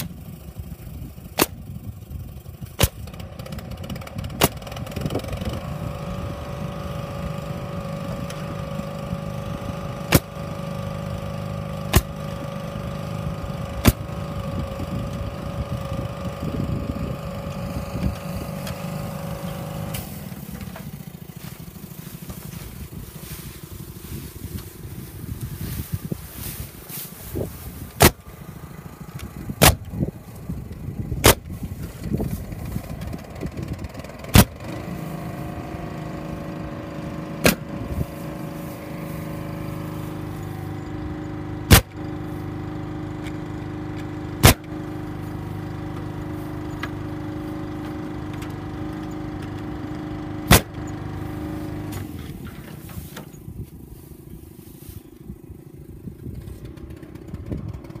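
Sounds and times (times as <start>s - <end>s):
steady machine hum: 0.0s - 58.0s
pneumatic stapler shots: 1.4s - 1.6s, 2.8s - 3.2s, 4.3s - 4.9s, 10.0s - 10.5s, 11.8s - 12.4s, 13.8s - 14.1s, 27.9s - 28.2s, 29.6s - 30.0s, 31.2s - 31.6s, 34.2s - 34.7s, 37.4s - 37.8s, 41.7s - 42.0s, 44.4s - 44.8s, 50.4s - 50.9s.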